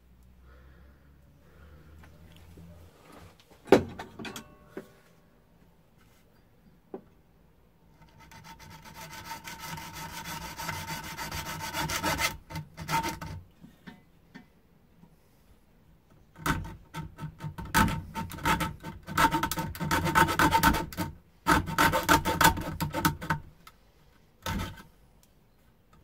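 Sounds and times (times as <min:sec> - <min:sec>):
hacksaw sawing metal tube: 0:08.0 - 0:13.4, 0:16.4 - 0:23.5, 0:24.4 - 0:24.9.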